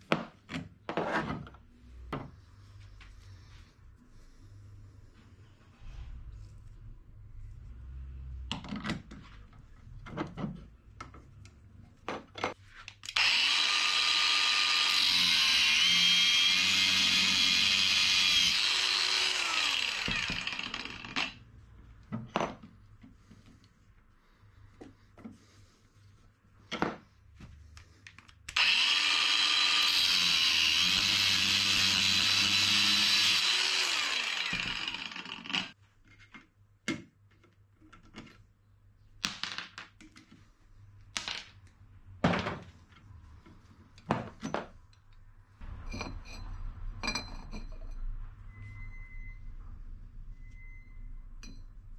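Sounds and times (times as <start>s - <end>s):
angle grinder cutting steel: 13.1s - 21.4s, 28.5s - 35.8s
metal clinks and knocks: 45.7s - 48.1s.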